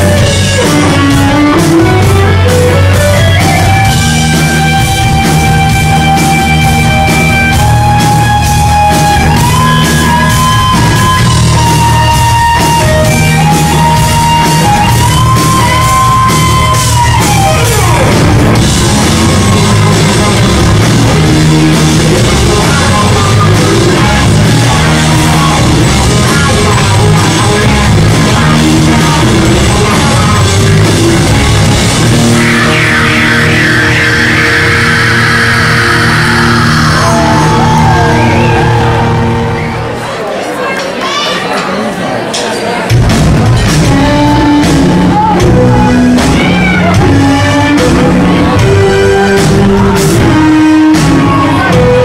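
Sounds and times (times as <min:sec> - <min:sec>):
lead melody of long held notes: 0:00.0 - 0:40.0
live rock band playing: 0:00.0 - 0:41.3, 0:42.5 - 0:52.0.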